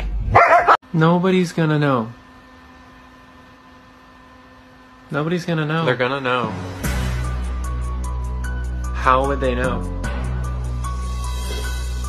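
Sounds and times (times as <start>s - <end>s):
background music sustained tones: 5.9s - 12.0s.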